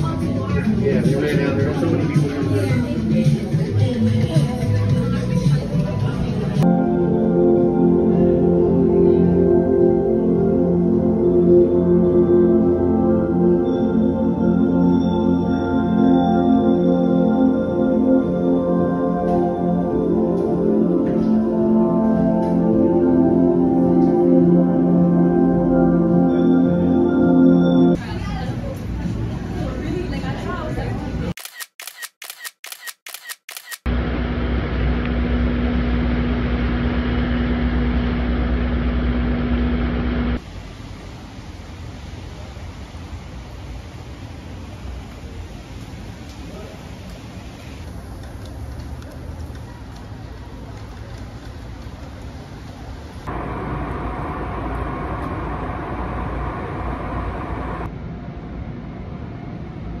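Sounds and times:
station hum: 0:00.4 - 0:28.1, 0:33.9 - 0:46.2, 0:52.6 - 1:00.0
camera shutter clicks: 0:31.4 - 0:33.9
constant hum: 0:33.9 - 1:00.0
faint whine: 0:53.0 - 1:00.0
loud rumble: 0:53.2 - 0:59.7.

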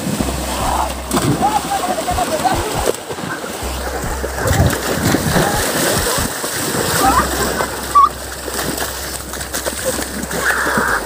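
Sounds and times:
water splashing: 0:00.0 - 0:11.0
people shouting: 0:00.4 - 0:03.0, 0:03.6 - 0:08.2, 0:09.9 - 0:11.0.

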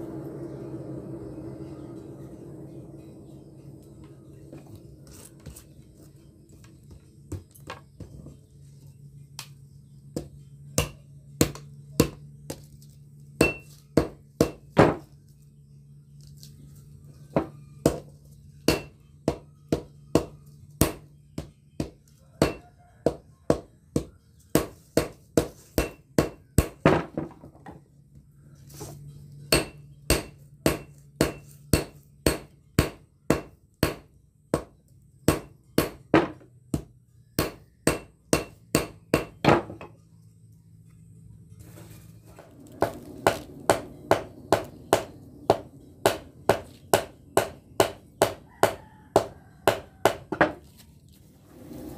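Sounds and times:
hammer ringing on anvil: 0:13.4 - 0:13.7, 0:29.5 - 0:34.0.

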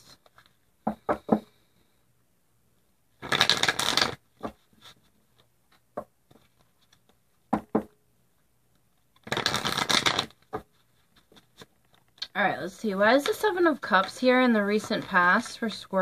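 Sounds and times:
cards being shuffled: 0:03.2 - 0:07.2, 0:08.8 - 0:12.4, 0:13.1 - 0:15.7
cards clicking: 0:09.2 - 0:10.6.

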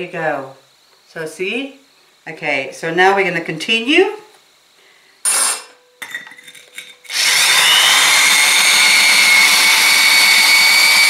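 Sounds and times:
power drill grinding into ceramic: 0:05.2 - 0:05.8, 0:06.8 - 0:11.0.

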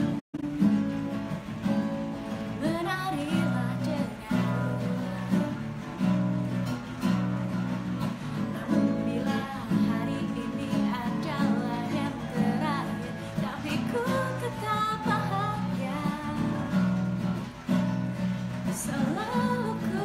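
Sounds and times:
acoustic guitar strumming: 0:00.0 - 0:20.0
woman singing: 0:02.5 - 0:06.3, 0:08.2 - 0:17.3, 0:18.6 - 0:20.0.

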